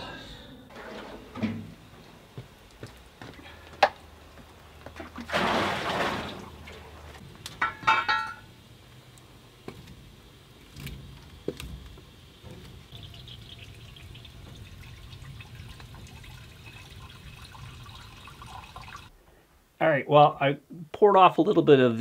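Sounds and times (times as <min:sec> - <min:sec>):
sap pouring: 0:12.9 - 0:19.1.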